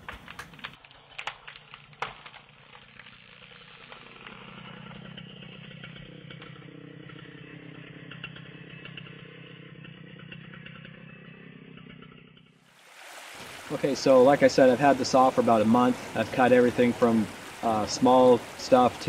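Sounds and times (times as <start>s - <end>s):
sharp clicks: 0.0s - 2.8s
chainsaw idling: 2.6s - 12.2s, 13.7s - 19.0s.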